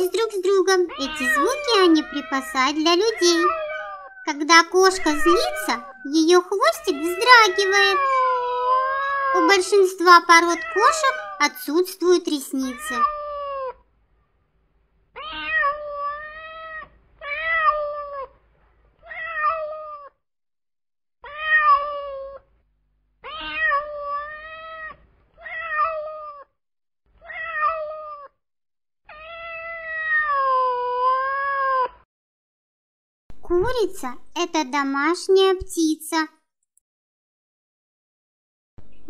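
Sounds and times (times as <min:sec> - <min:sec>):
cat meowing: 0:00.7 - 0:11.8, 0:12.4 - 0:13.8, 0:15.1 - 0:18.4, 0:19.0 - 0:20.2, 0:21.2 - 0:22.5, 0:23.2 - 0:26.5, 0:27.2 - 0:28.4, 0:29.1 - 0:32.0.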